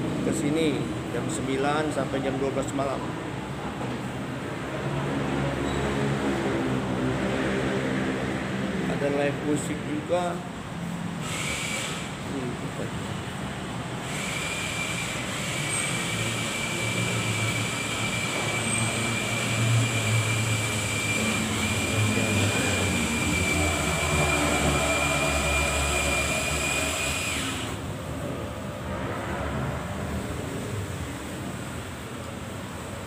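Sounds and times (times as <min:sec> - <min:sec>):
machine running with high whine: 0:13.9 - 0:28.0.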